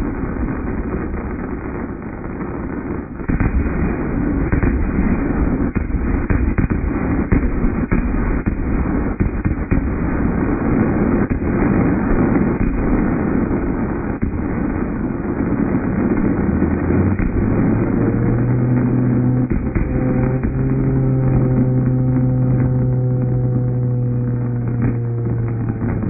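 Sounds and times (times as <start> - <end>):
fireworks barrage: 0.0 - 26.0
steady low tone: 13.8 - 26.0
higher steady tones: 17.2 - 26.0.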